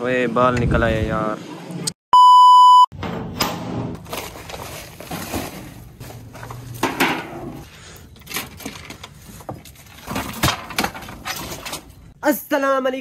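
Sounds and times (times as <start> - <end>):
plastic sheet rustling: 4.0 - 7.0.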